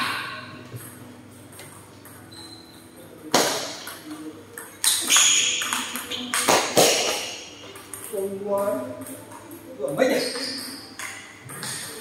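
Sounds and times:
table tennis ball clicks: 0:10.2 - 0:12.0.

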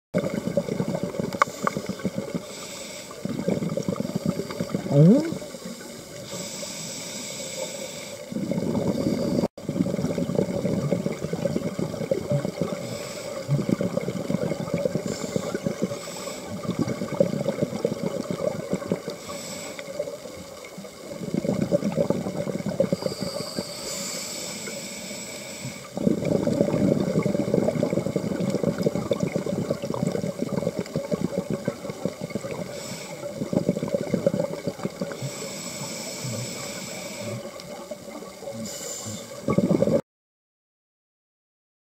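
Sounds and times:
bubbling exhalations underwater: 0:00.2 - 0:02.4, 0:03.2 - 0:05.6, 0:08.4 - 0:12.8, 0:13.4 - 0:15.9, 0:16.5 - 0:19.2, 0:21.1 - 0:23.3, 0:26.0 - 0:35.4, 0:37.3 - 0:40.0
regulator hissing inhalations: 0:01.4 - 0:03.5, 0:04.1 - 0:09.5, 0:12.7 - 0:13.5, 0:15.0 - 0:16.6, 0:19.2 - 0:20.1, 0:22.9 - 0:26.0, 0:32.6 - 0:33.5, 0:35.1 - 0:37.6, 0:38.5 - 0:39.4.

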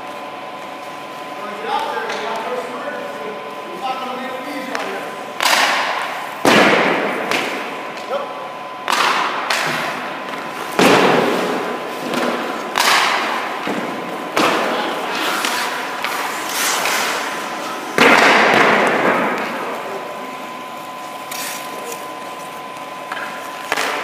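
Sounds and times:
hockey pucks hitting pads and boards: 0:04.5 - 0:08.2, 0:08.8 - 0:20.3, 0:23.0 - 0:24.0
skates scraping ice: 0:14.4 - 0:18.2.

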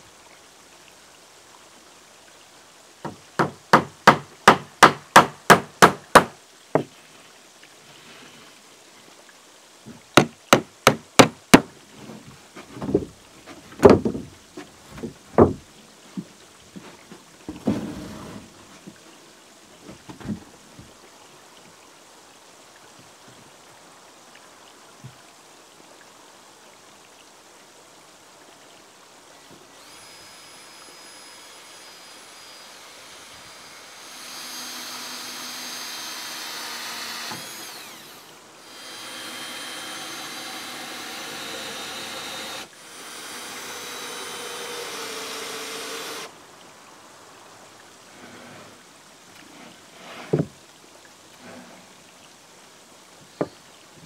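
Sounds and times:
heavy dull knocks on timber: 0:03.0 - 0:06.9, 0:09.9 - 0:11.7, 0:12.6 - 0:13.2, 0:13.8 - 0:14.3, 0:14.9 - 0:15.6
hammer striking nails into wood: 0:03.4 - 0:06.4, 0:10.2 - 0:11.7.

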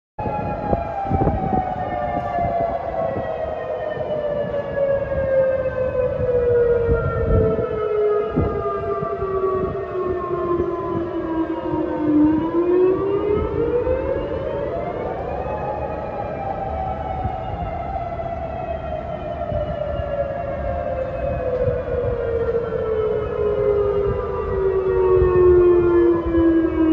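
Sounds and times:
warning siren wailing: 0:00.2 - 0:26.9.

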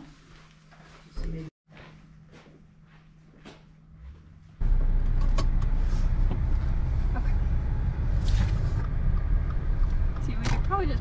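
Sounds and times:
road and engine rumble in car: 0:04.6 - 0:11.0.

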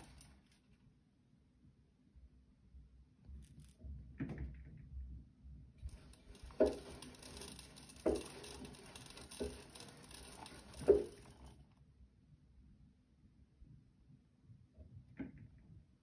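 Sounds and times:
water running into drum: 0:05.9 - 0:11.5.

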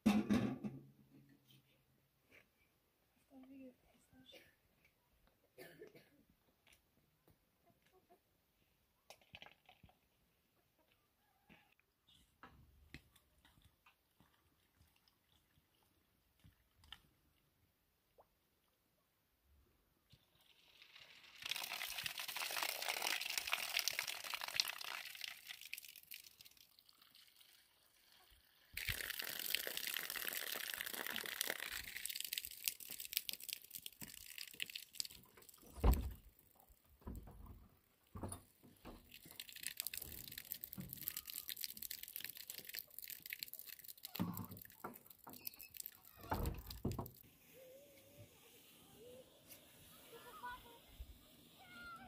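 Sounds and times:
water pouring into metal bowl: 0:20.4 - 0:35.8, 0:39.1 - 0:47.2
hands rinsing potatoes: 0:28.8 - 0:36.0, 0:38.7 - 0:47.2.

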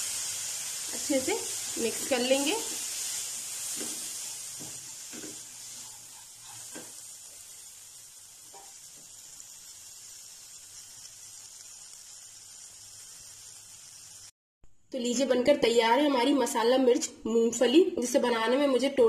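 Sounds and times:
food sizzling in a pan: 0:00.0 - 0:14.4
spatula scraping and tapping pan: 0:03.6 - 0:07.5, 0:08.5 - 0:09.2.

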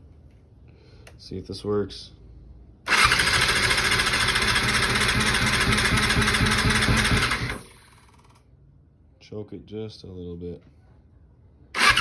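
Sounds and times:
electric starter cranking engine: 0:02.9 - 0:08.4, 0:11.8 - 0:12.0.

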